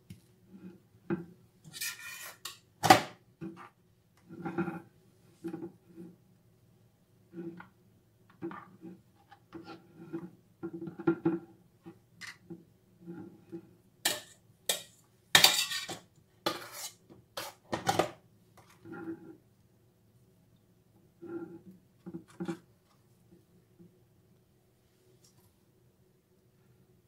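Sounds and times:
blade scraping a metal bowl: 1.6 - 2.6, 14.1 - 17.6
palette knife scraping and tapping: 14.1 - 17.6.

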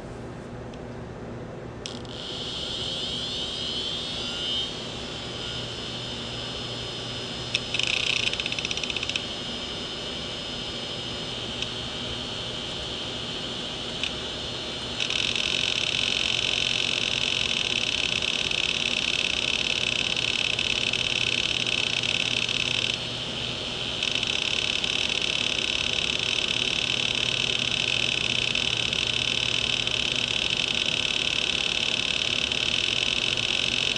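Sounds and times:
spinning platter whir: 1.8 - 33.9
hard disk head arm chattering: 7.4 - 9.3, 15.0 - 23.1, 23.8 - 33.9.

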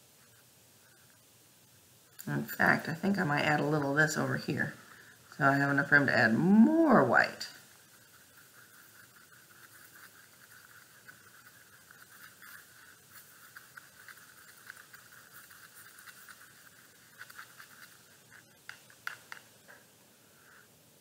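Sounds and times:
paintbrush swishing in palette: 5.4 - 18.6
brush clicking on palette: 8.4 - 19.8.

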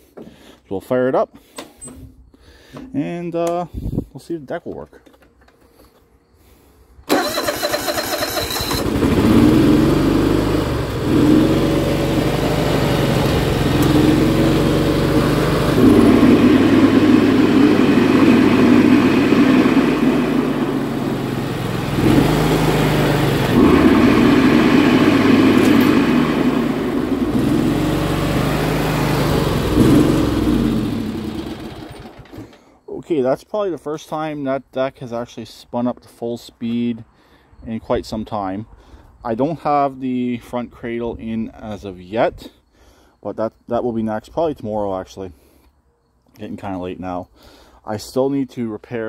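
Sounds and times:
riding mower engine starting and revving: 7.1 - 32.7
mower blades spinning: 10.6 - 32.5.

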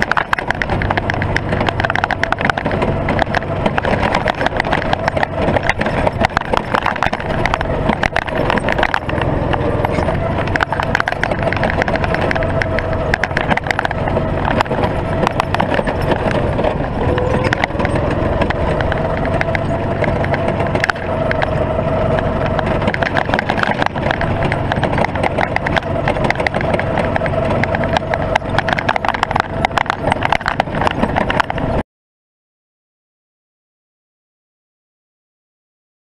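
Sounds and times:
camera rattling against kart: 0.0 - 31.8
go-kart engine running: 0.0 - 31.8.

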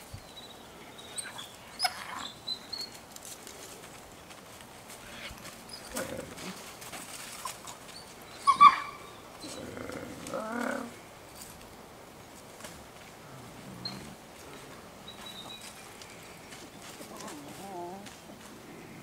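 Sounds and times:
wolf whining: 1.1 - 3.0, 7.4 - 11.0, 13.4 - 14.2
wolf yelping: 1.2 - 2.4, 8.4 - 9.6.

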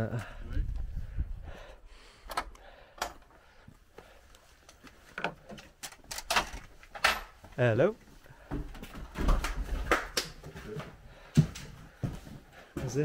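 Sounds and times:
door clicks: 2.3 - 3.2.

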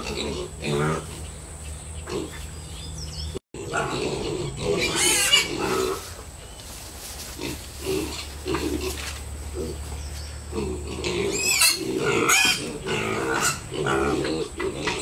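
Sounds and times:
piglets grunting: 0.0 - 2.6, 3.6 - 6.2, 7.3 - 15.0
piglet squealing: 4.7 - 6.0, 11.2 - 15.0.

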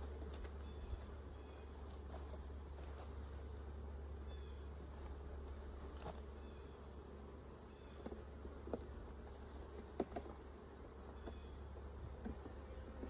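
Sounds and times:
honeybees buzzing: 0.0 - 13.0
hive frames clicking and knocking: 7.9 - 13.0.

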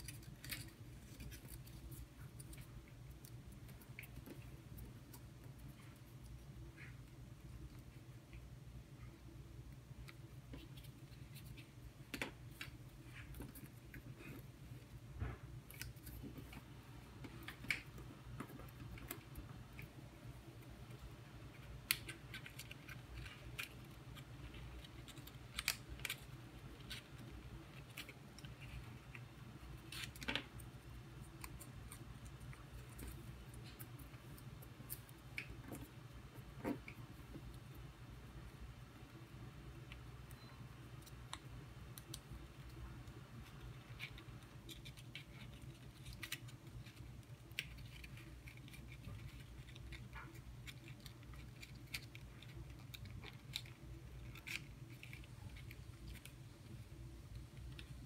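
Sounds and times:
paper crinkling and clicking: 0.0 - 7.0, 20.9 - 36.0, 40.3 - 58.0
faint low hum: 0.0 - 58.0.

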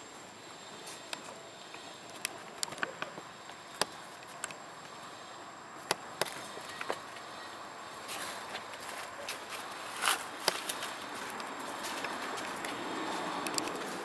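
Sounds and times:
steady outdoor hiss: 0.0 - 14.0
sharp clicks and snaps: 2.1 - 4.9, 5.8 - 7.0, 13.4 - 14.0.

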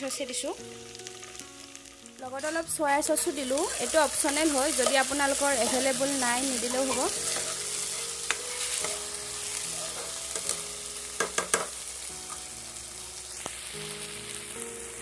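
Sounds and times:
onions frying in oil: 0.0 - 15.0
spatula stirring and scraping: 3.6 - 10.6.

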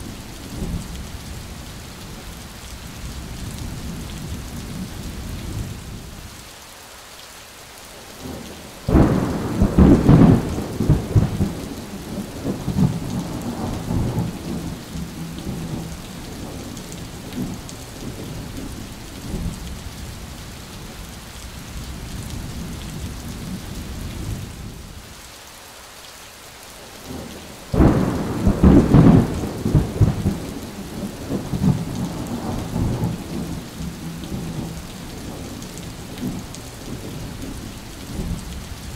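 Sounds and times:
heavy rain: 0.0 - 38.9
thunder rumbling: 8.3 - 20.2, 27.1 - 38.9.

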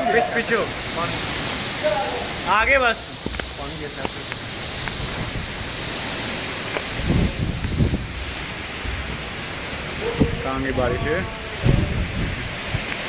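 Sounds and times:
rain hissing: 0.0 - 13.0
wind buffeting microphone: 3.1 - 13.0.

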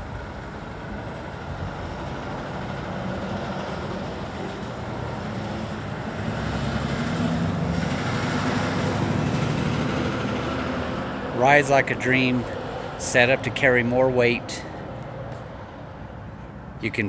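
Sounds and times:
motor vehicle engine running: 0.0 - 13.6.

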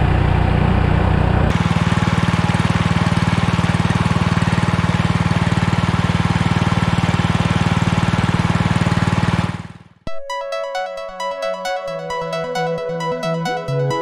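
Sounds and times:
boat motor running: 0.0 - 10.0.

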